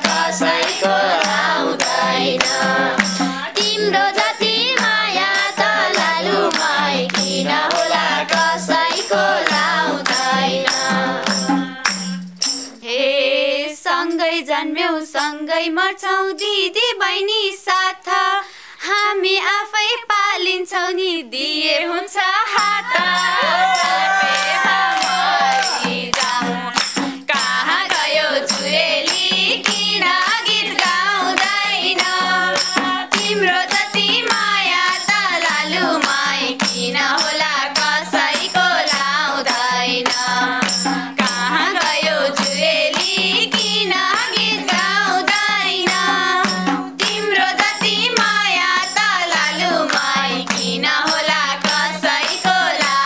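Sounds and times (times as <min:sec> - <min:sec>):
call-and-answer folk singing: 0:00.0 - 0:12.2, 0:21.4 - 0:53.0
hand clapping: 0:00.0 - 0:12.8, 0:22.6 - 0:53.0
tambourine jingling: 0:00.0 - 0:12.8, 0:22.5 - 0:53.0.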